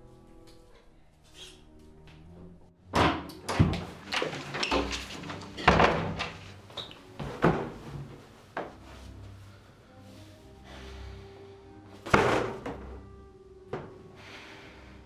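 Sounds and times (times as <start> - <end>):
wooden door slamming: 3.0 - 6.5, 12.1 - 12.9
loud thumps and knocks: 12.1 - 13.0.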